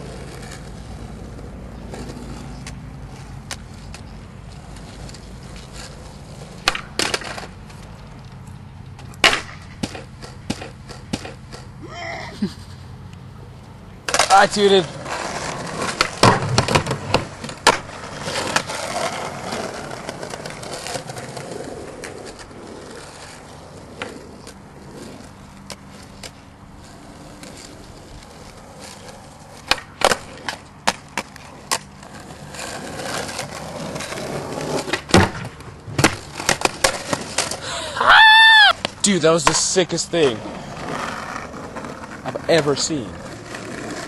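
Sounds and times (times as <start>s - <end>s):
skateboard clacks: 0.0s - 11.8s, 14.0s - 37.8s, 38.6s - 44.0s
skateboard wheels rolling on asphalt: 0.0s - 44.0s
person shouting: 37.7s - 38.8s.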